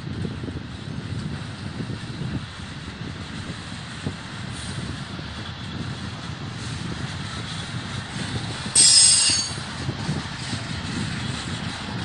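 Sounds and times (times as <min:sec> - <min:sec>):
freight train rolling rumble: 0:00.0 - 0:12.0
high-pitched wheel squeal: 0:08.8 - 0:09.6.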